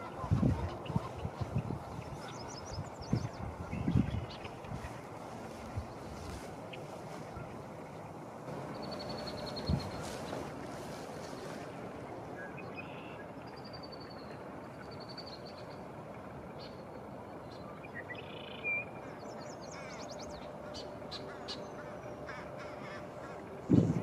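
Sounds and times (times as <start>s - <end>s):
small birds chirping: 0.0s - 11.7s
wind through branches: 0.0s - 24.0s.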